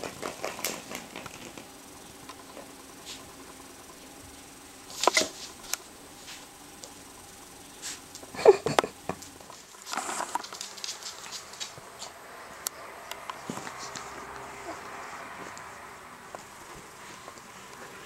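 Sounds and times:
puppy paws pattering on wooden floor: 0:09.2 - 0:12.2, 0:13.3 - 0:14.8.

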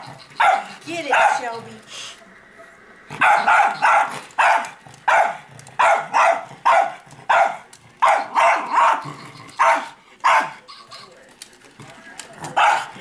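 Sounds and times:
dog barking: 0:00.4 - 0:01.6, 0:02.6 - 0:10.6, 0:12.5 - 0:13.0.

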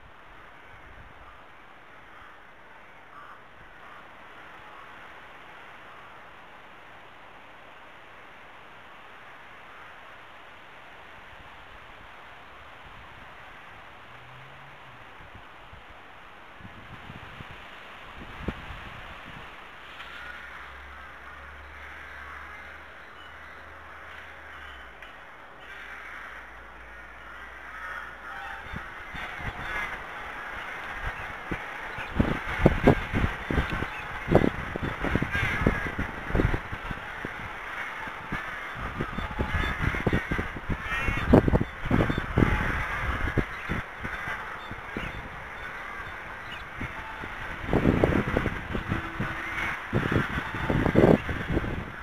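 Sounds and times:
outdoor background hiss: 0:00.0 - 0:52.0
birds cawing: 0:00.4 - 0:06.3, 0:20.0 - 0:52.0.

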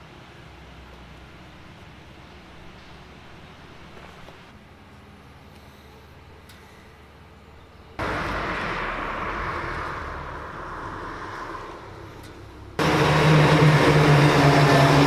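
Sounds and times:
truck engine approaching: 0:07.9 - 0:15.0
rushing noise: 0:08.0 - 0:15.0.

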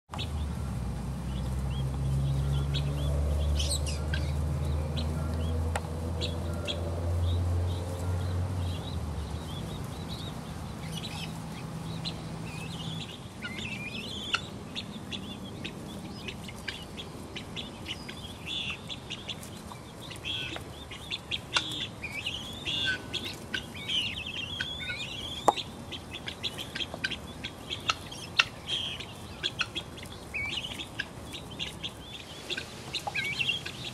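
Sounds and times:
chicks chirping: 0:00.1 - 0:33.9.

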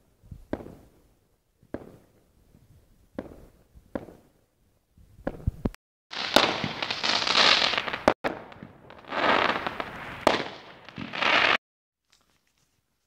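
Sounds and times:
fireworks bangs: 0:05.2 - 0:11.6
fireworks crackling: 0:05.2 - 0:11.6.

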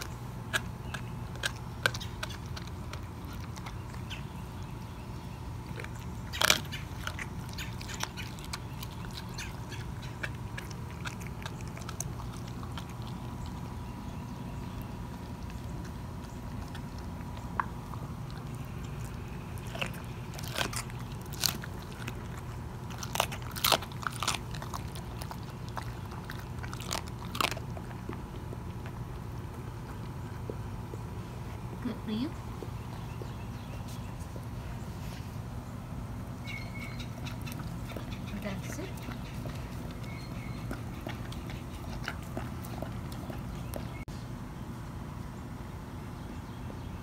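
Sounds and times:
dog gnawing wetly: 0:00.0 - 0:34.8, 0:35.4 - 0:44.1
bone crunching: 0:05.7 - 0:13.6, 0:15.3 - 0:30.0.

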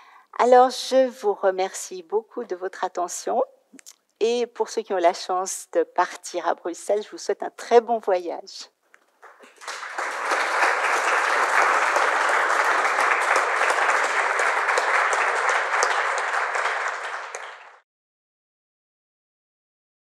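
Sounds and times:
audience applauding: 0:09.2 - 0:17.8.

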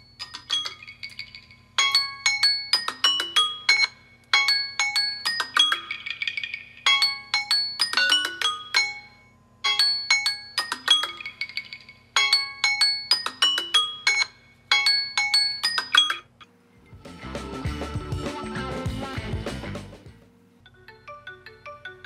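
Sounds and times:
bell-like phone ringtone: 0:00.0 - 0:16.4, 0:20.7 - 0:22.0.

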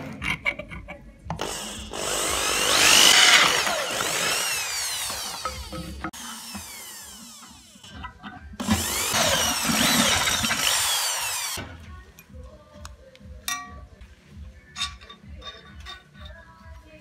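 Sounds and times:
electric drill boring through steel: 0:01.4 - 0:11.6.

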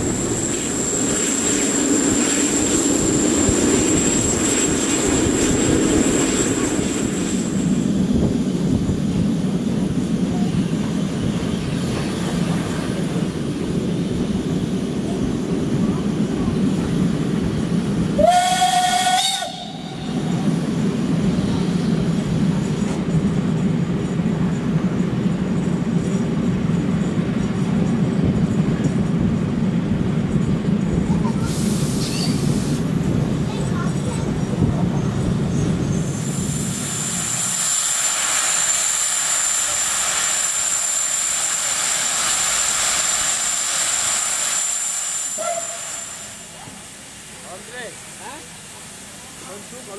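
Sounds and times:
train carriage rolling: 0:00.0 - 0:49.9
steam whistle blast: 0:18.2 - 0:20.2, 0:45.3 - 0:46.4
brief hiss: 0:31.4 - 0:32.9.

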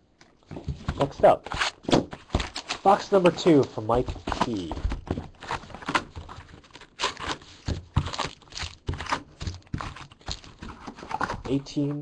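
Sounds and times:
packaging crinkling and tearing: 0:01.4 - 0:04.7, 0:05.3 - 0:11.4.

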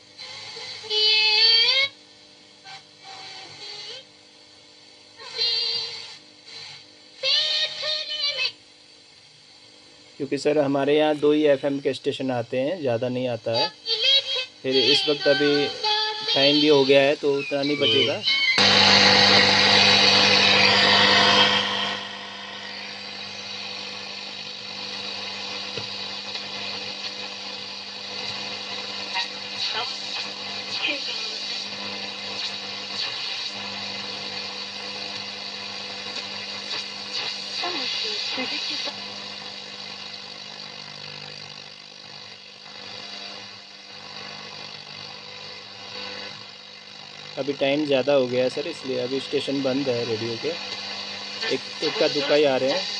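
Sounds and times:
radio static hiss: 0:14.6 - 0:34.6, 0:36.1 - 0:39.0, 0:47.4 - 0:52.9
steady low hum: 0:15.2 - 0:27.6
low steady hum: 0:18.6 - 0:24.7.

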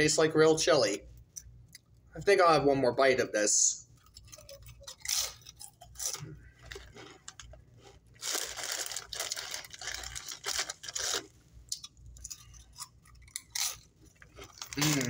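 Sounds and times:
chewing chips crunching: 0:03.9 - 0:15.0
chip bag crinkling: 0:04.0 - 0:11.3, 0:12.2 - 0:15.0.

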